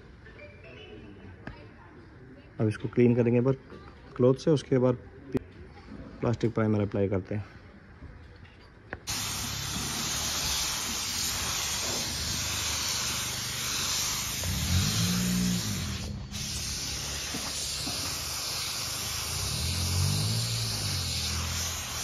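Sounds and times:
spray gun hissing: 0:09.1 - 0:22.0.

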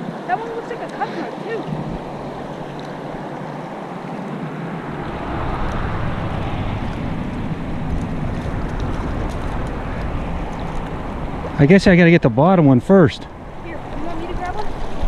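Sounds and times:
river current rushing: 0:00.0 - 0:15.0
wind noise on microphone: 0:04.3 - 0:11.8
low rumble: 0:04.7 - 0:14.1.

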